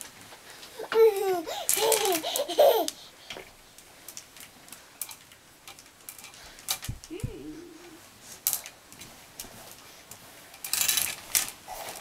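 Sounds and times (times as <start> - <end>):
clothes hangers clicking and rustling: 0.0 - 7.2, 7.8 - 12.0
toddler laughing: 0.8 - 3.0.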